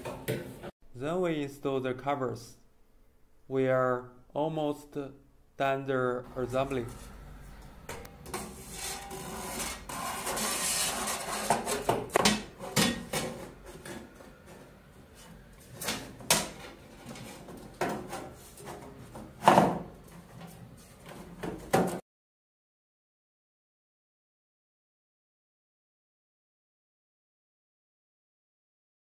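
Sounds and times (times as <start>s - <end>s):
sheet metal scraping: 6.8s - 13.8s.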